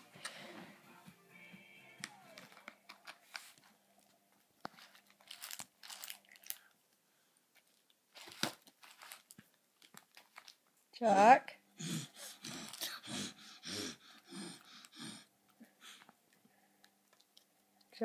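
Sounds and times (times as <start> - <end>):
sweet wrappers crinkling: 2.0 - 10.8, 12.6 - 13.0.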